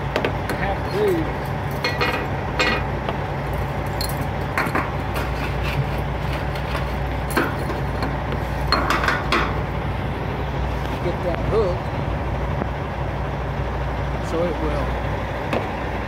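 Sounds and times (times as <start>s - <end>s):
steady low hum: 0.0s - 16.0s
metal chain clinking: 3.6s - 4.3s.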